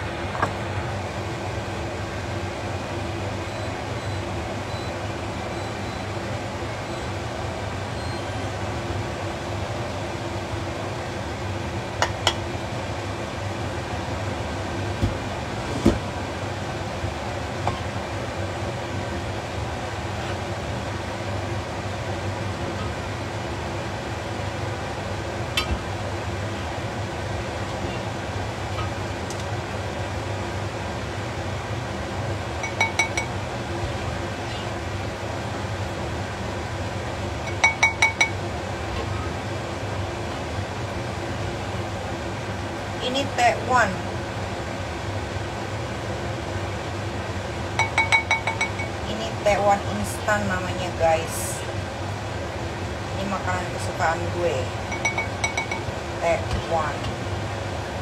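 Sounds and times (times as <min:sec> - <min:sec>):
utensil knocking against pot: 0:47.8 - 0:49.0, 0:54.9 - 0:55.9.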